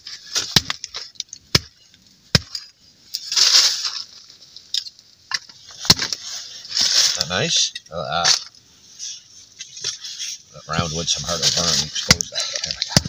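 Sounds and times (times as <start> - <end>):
hatchet chopping firewood: 0.4 - 2.7, 5.8 - 6.2, 12.0 - 13.0.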